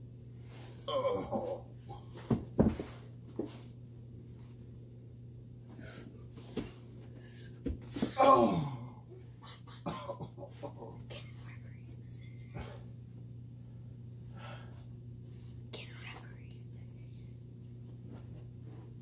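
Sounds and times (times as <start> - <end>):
steady low hum: 0.0 - 19.0
person grunting: 0.8 - 1.8, 8.0 - 9.2
boy crying out: 8.0 - 9.0.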